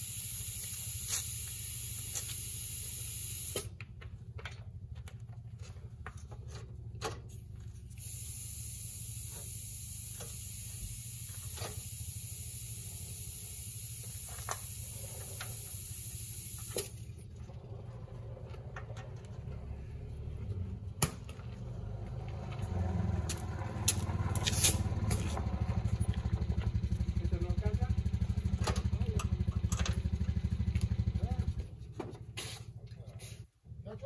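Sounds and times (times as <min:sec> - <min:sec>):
loud spraying hiss: 0:00.0 - 0:03.7, 0:08.0 - 0:17.0
low engine rumble: 0:00.0 - 0:34.0.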